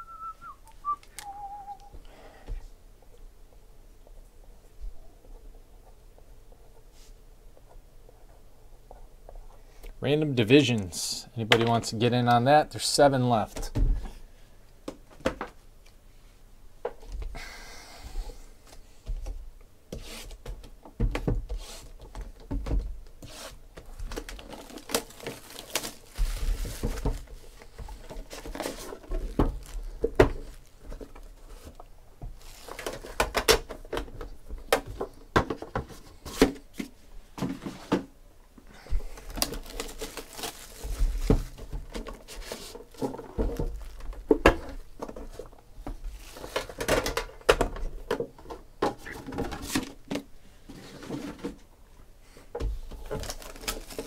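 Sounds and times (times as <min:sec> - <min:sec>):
plastic wrapping crinkling and tearing: 0:24.0 - 0:31.8, 0:39.1 - 0:44.4, 0:53.0 - 0:54.0.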